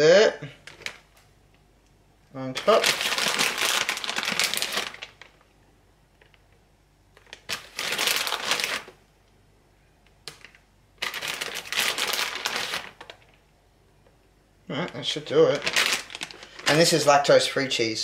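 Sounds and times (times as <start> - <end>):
plastic bag crinkling: 0.6 - 1.1, 2.6 - 5.5, 6.2 - 9.0, 10.3 - 13.4, 14.9 - 17.4.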